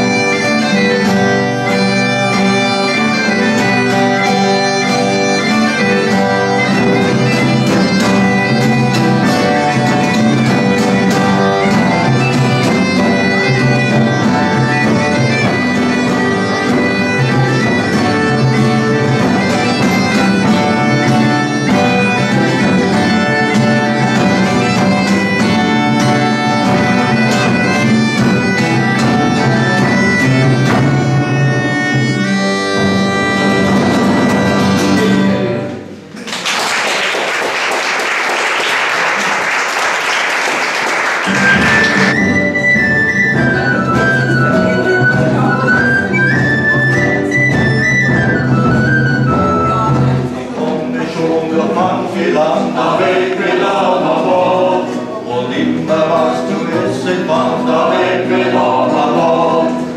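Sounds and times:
high wind instrument melody: 0.0s - 36.0s, 40.8s - 50.6s
folk band playing lively tune: 0.0s - 36.2s, 37.1s - 59.9s
audience applause: 36.2s - 42.2s.

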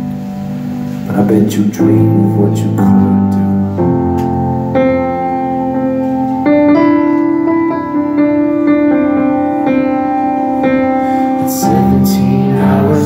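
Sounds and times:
piano playing slow chords: 0.0s - 13.0s
person singing: 1.1s - 3.5s, 11.2s - 13.0s.

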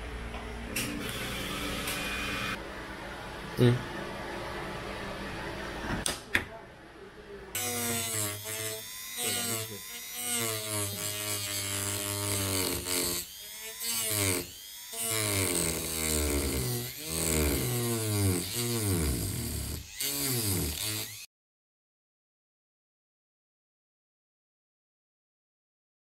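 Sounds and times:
rotary tool cutting disc whine: 1.0s - 2.6s, 7.6s - 21.3s.

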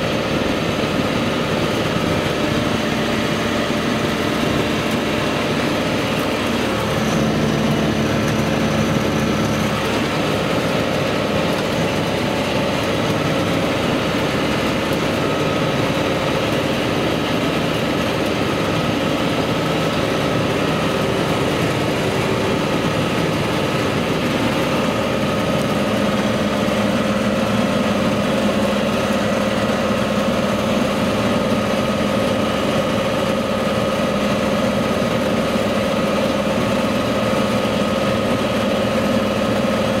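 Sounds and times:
tractor engine running: 0.0s - 40.0s.

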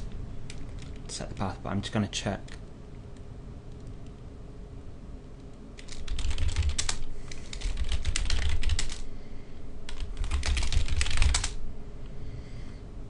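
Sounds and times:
typing on computer keyboard: 5.8s - 9.0s, 9.9s - 11.6s.

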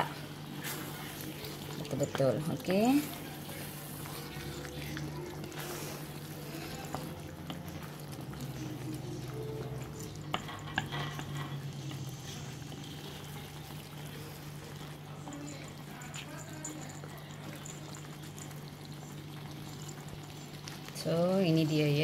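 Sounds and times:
spatula stirring curry: 0.0s - 20.8s
sauce simmering and sizzling: 0.0s - 22.0s.

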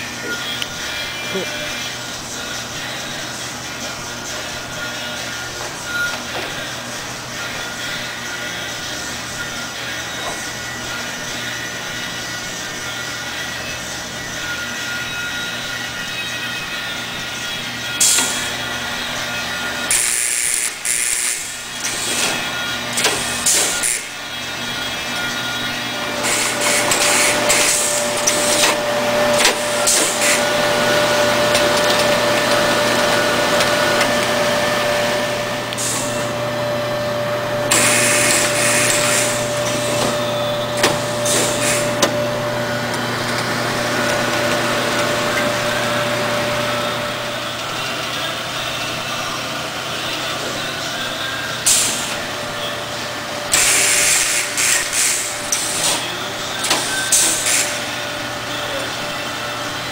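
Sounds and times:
packaging machine humming: 16.8s - 59.9s.

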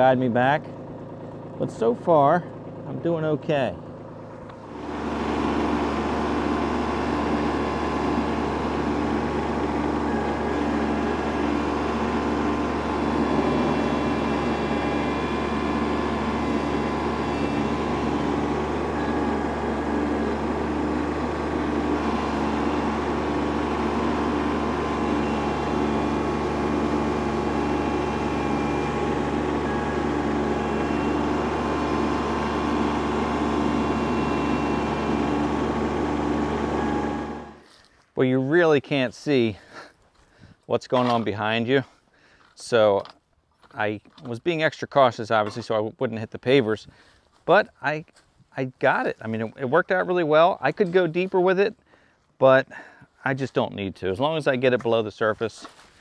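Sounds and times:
tractor diesel engine under load: 0.0s - 37.8s
stump grinder grinding: 0.6s - 3.1s, 3.7s - 37.9s.

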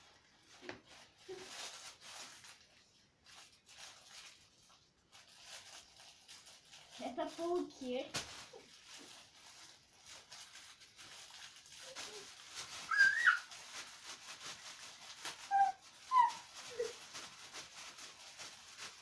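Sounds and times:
packaging rustling: 0.0s - 19.0s
baby squealing and babbling: 12.8s - 13.5s, 15.4s - 17.0s.

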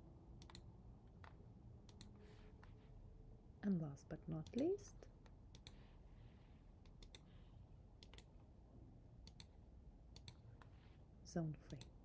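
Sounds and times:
low room hum: 0.0s - 12.0s
computer mouse clicks: 0.4s - 2.7s, 4.4s - 5.8s, 6.8s - 7.3s, 8.0s - 8.3s, 9.2s - 10.7s, 11.7s - 12.0s.

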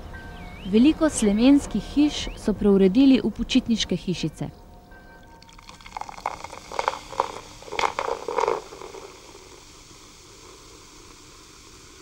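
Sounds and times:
recording hiss: 5.2s - 12.0s.

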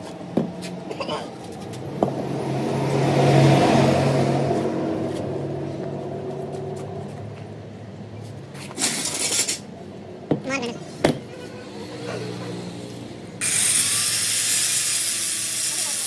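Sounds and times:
vehicle engine passing by: 1.5s - 7.8s, 11.6s - 13.4s.

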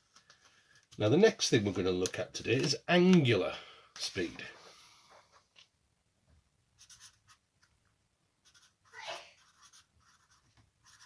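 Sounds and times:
marker writing on paper: 6.8s - 7.4s, 8.4s - 11.0s.

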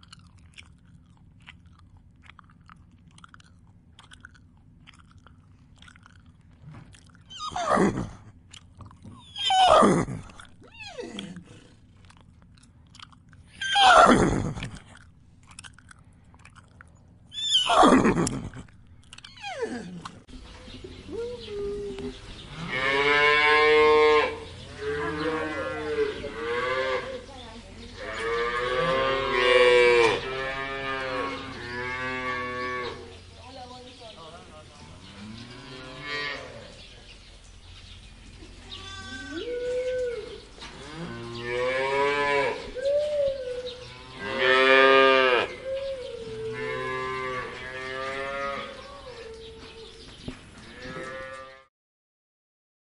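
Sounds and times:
cows mooing: 22.5s - 27.3s, 28.0s - 33.1s, 35.1s - 36.7s, 38.8s - 42.8s, 43.7s - 45.6s, 46.2s - 49.2s, 50.6s - 51.7s.

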